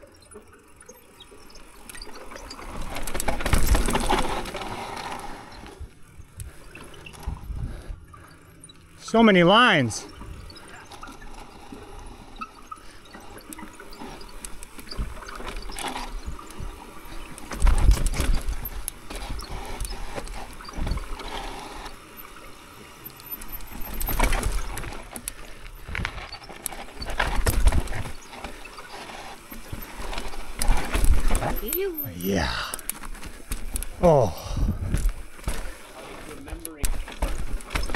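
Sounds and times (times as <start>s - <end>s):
bike tyres on dirt and rock: 0.7s - 37.9s
bike knocks and rattles: 2.4s - 4.8s, 14.2s - 22.3s, 22.9s - 31.8s, 34.8s - 37.9s.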